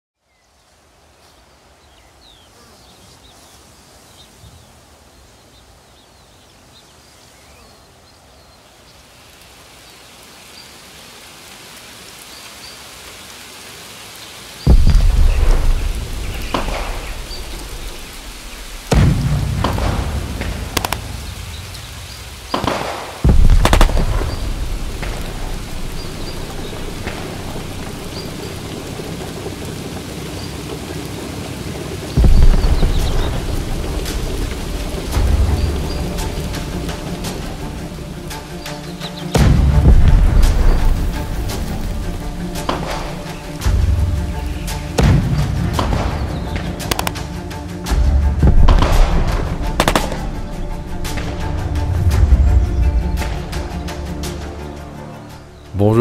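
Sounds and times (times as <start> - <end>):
rain: 0.2 - 56.0
thunder booms: 14.7 - 30.1, 32.1 - 36.9, 39.4 - 41.8, 48.3 - 50.6.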